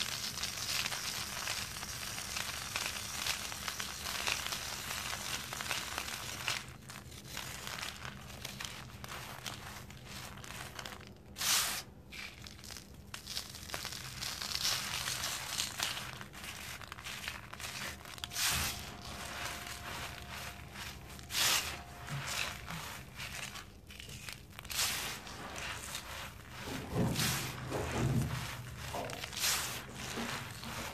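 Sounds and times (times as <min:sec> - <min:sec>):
cement chunk crunching by hand: 0:00.0 - 0:30.9.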